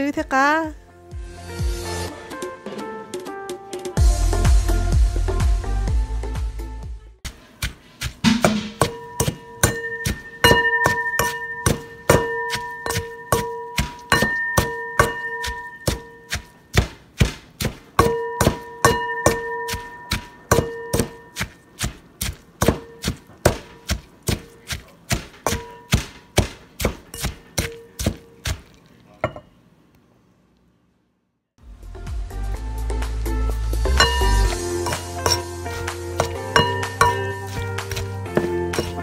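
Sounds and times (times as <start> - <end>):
knife chopping on cutting board: 7.3 - 28.7, 34.8 - 39.0.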